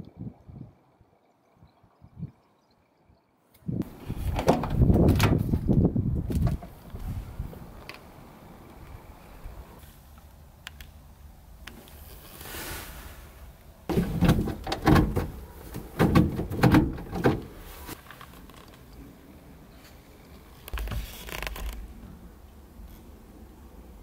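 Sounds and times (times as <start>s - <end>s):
heavy clunks and knocks: 13.9s - 17.6s.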